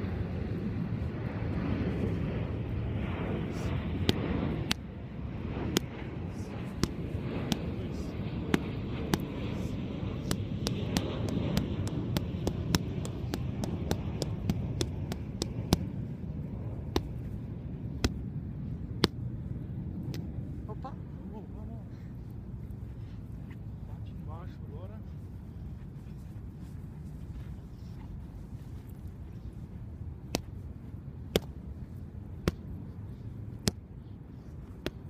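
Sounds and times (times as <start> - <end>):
low background rumble: 0.0 - 35.0
boxing gloves slapping mitts: 6.7 - 7.8, 8.5 - 16.0, 16.9 - 17.4, 18.0 - 18.2, 19.0 - 19.2, 31.3 - 31.6, 32.4 - 32.7, 34.6 - 35.0.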